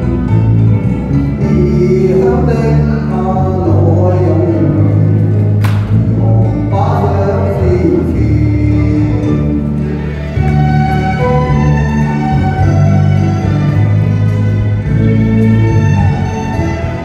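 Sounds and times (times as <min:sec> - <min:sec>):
backing music: 0:00.0 - 0:17.0
man singing pop ballad: 0:01.4 - 0:09.8
sharp click: 0:05.6 - 0:05.9.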